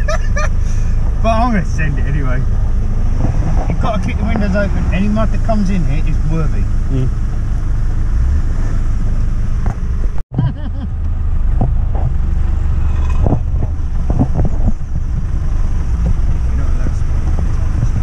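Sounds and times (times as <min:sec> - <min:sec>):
engine and drivetrain rumble: 0:00.0 - 0:18.0
knocks and rattles: 0:13.1 - 0:18.0.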